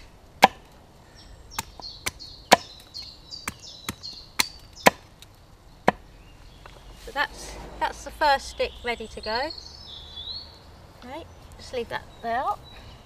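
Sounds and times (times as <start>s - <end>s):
axe chopping wood: 0.0s - 0.7s, 1.6s - 2.8s, 3.4s - 5.2s
small bird singing: 1.1s - 13.0s.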